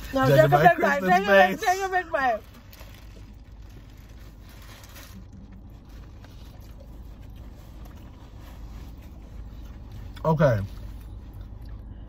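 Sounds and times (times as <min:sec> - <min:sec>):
car cabin hum: 0:00.0 - 0:11.8
person chewing: 0:05.0 - 0:11.9.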